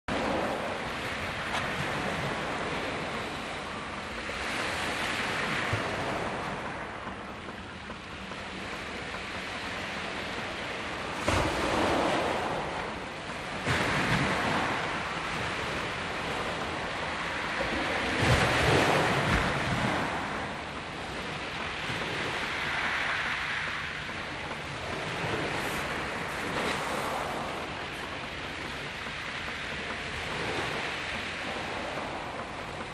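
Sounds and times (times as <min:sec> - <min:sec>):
surf hiss: 0:00.1 - 0:32.9
wave crashing: 0:00.1 - 0:32.9.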